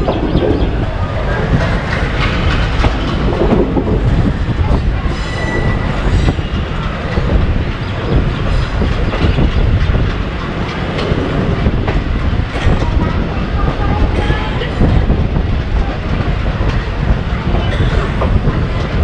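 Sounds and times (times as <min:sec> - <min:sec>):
train wheels clattering: 0:00.0 - 0:19.0
high wheel squeal: 0:05.0 - 0:06.7.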